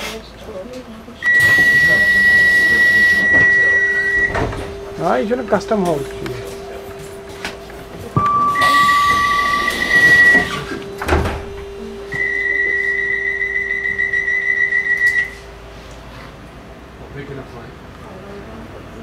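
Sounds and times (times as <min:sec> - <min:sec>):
low train hum: 0:00.0 - 0:19.0
train doors thudding shut: 0:01.2 - 0:05.0, 0:05.8 - 0:12.3
high electronic beeps: 0:01.2 - 0:06.0, 0:08.2 - 0:15.4
long high tone: 0:01.2 - 0:15.8.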